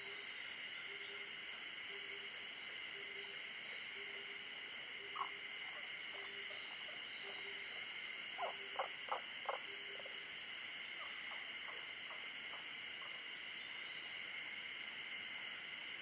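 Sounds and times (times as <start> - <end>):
frogs croaking: 0.0 - 16.0
high-pitched frog chorus: 0.0 - 16.0.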